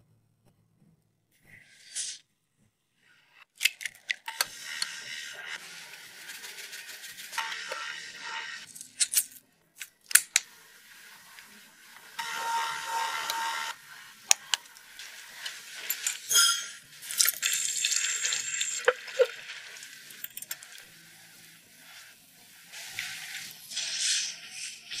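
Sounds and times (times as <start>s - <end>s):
cream pouring into a glass jug: 17.0s - 20.9s.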